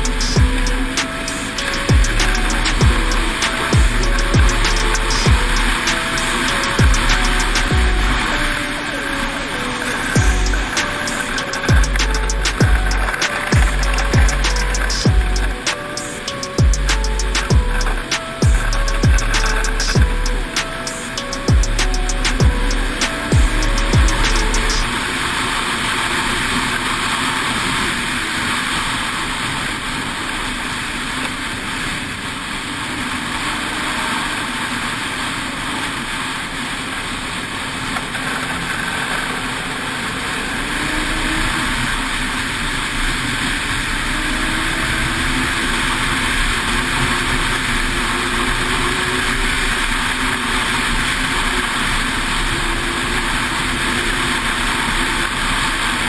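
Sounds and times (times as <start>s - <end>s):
snowmobile engine drone: 0.0s - 56.0s
snowmobile track noise: 17.9s - 56.0s.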